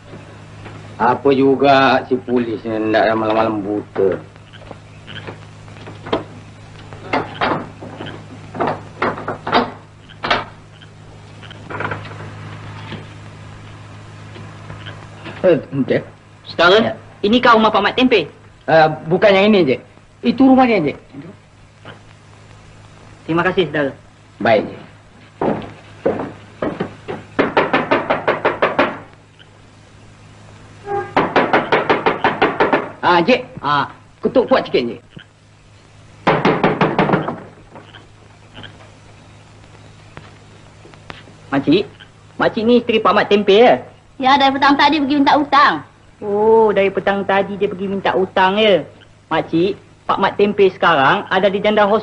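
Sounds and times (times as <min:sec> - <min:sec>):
steady low hum: 0:00.0 - 0:52.0
wooden shutters knocking and clattering: 0:07.1 - 0:10.5, 0:25.4 - 0:29.1, 0:31.1 - 0:33.0, 0:36.2 - 0:37.8.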